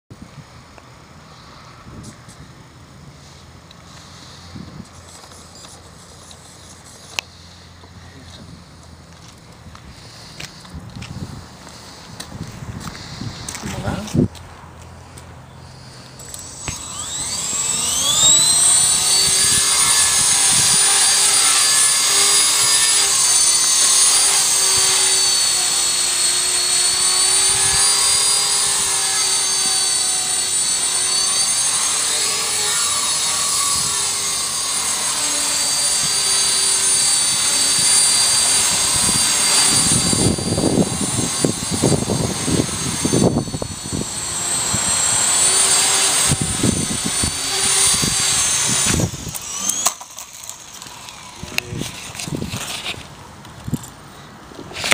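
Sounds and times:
rc helicopter whining: 1.2 - 54.0, 54.6 - 54.9
wind buffeting microphone: 10.6 - 14.4, 16.7 - 25.0, 37.2 - 49.6.

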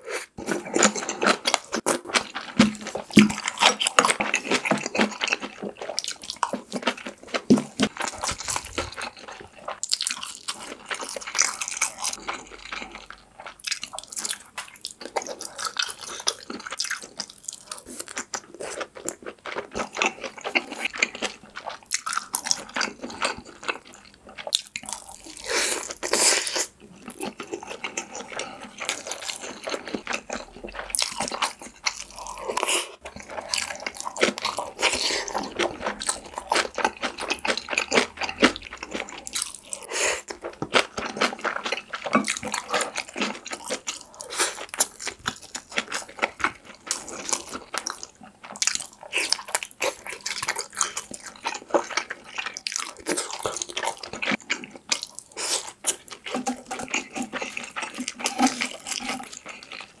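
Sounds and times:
wet chewing and crunching: 0.0 - 60.0.

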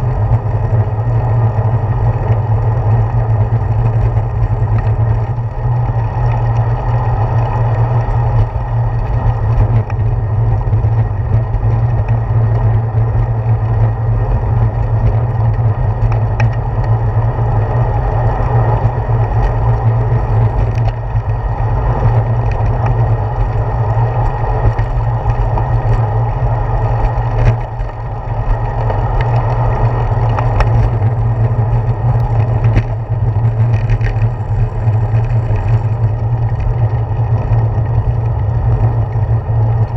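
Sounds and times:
bicycle road vibration: 0.0 - 39.9
wind rumble: 0.0 - 39.9.

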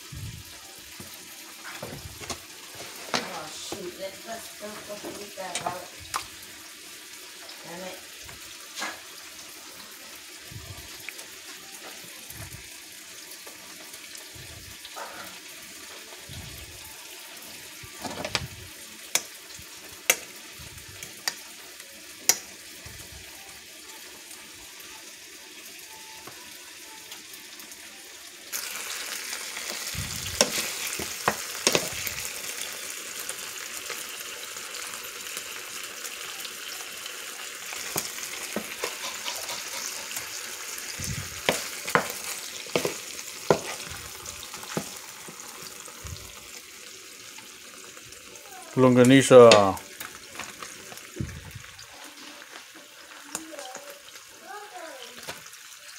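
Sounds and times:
sausages sizzling in a frying pan: 0.0 - 55.9
pan and utensil clicks and knocks: 37.8 - 40.3.

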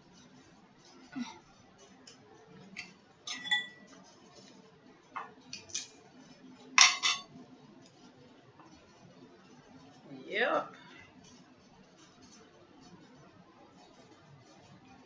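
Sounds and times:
utensil clinking against dish: 2.0 - 4.0, 6.8 - 7.3.

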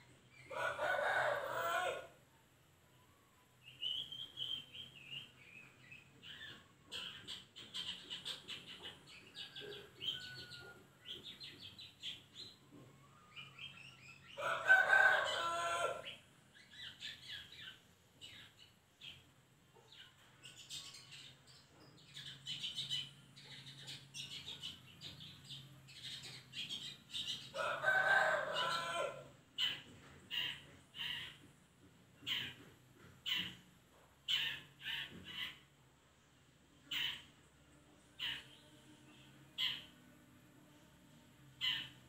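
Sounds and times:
rooster crowing: 0.5 - 2.2, 14.4 - 16.1, 27.5 - 29.3
bird chirping and chattering: 3.8 - 12.6, 16.5 - 27.6, 29.6 - 31.5, 32.2 - 35.8, 36.8 - 37.4.

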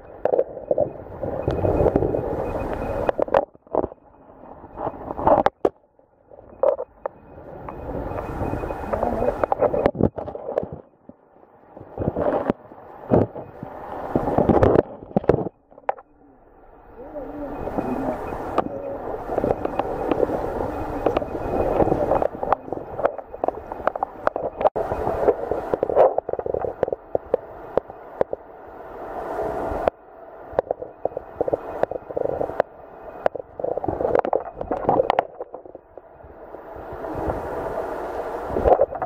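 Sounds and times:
muffled underwater stream rushing: 0.0 - 5.6, 6.3 - 39.0
sharp clicks and knocks: 21.0 - 28.4.

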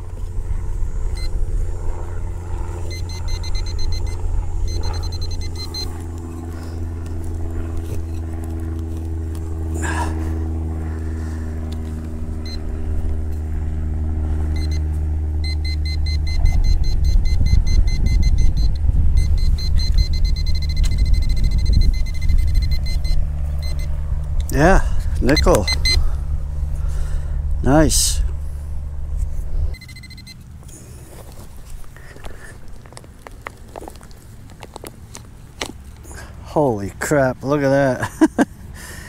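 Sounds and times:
low steady rumble: 0.0 - 39.0
metal detector beeping rapidly: 1.1 - 1.4, 2.8 - 6.6, 14.5 - 23.9, 25.2 - 26.1, 29.7 - 30.4.

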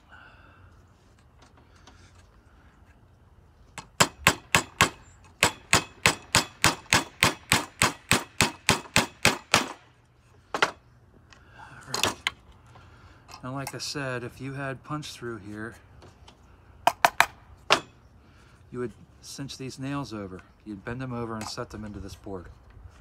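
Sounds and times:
hammer striking nail into wood: 3.9 - 9.8.

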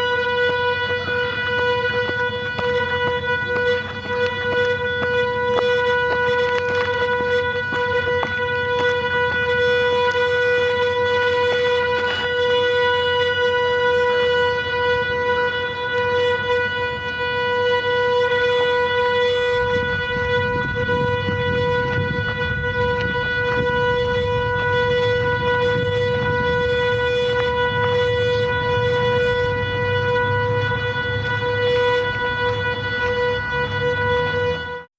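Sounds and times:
electric motor whine: 0.0 - 34.9.

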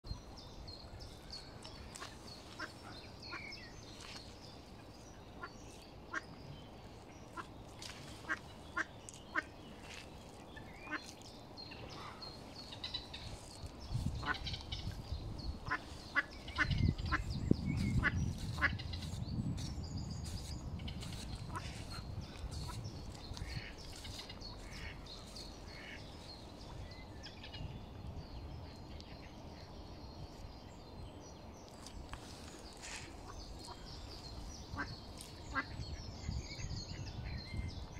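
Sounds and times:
ducklings peeping: 7.3 - 11.2, 12.7 - 26.1, 32.8 - 36.4.

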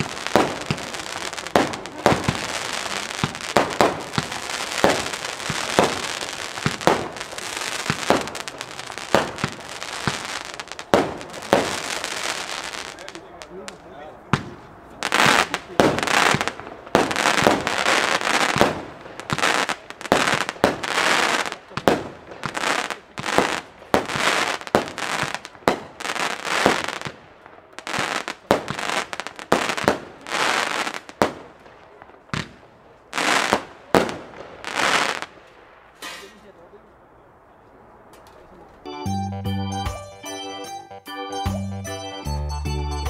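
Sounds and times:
firework launch pops and bursts: 0.0 - 12.4, 14.3 - 27.2, 27.8 - 36.4
firework crackling: 0.0 - 36.6.

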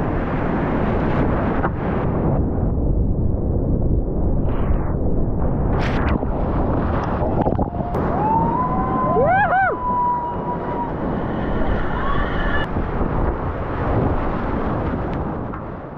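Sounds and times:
whistle-like tone: 9.8 - 12.7.

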